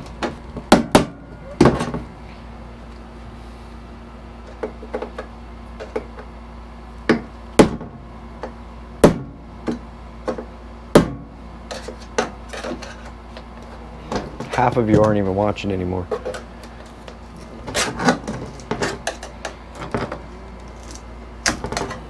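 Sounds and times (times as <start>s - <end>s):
parts and packing knocking: 7.1s - 15.3s, 16.1s - 22.0s.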